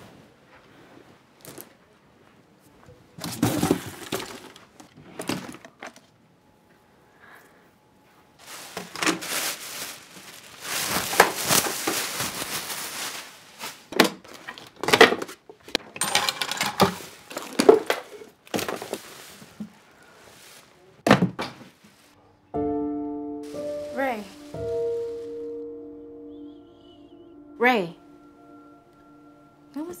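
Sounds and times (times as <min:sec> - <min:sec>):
items thunking down: 0:03.2 - 0:06.1, 0:08.4 - 0:09.9, 0:13.9 - 0:19.8
clothes rustling: 0:08.3 - 0:14.4, 0:16.9 - 0:22.2, 0:23.4 - 0:25.7
music: 0:22.5 - 0:30.0.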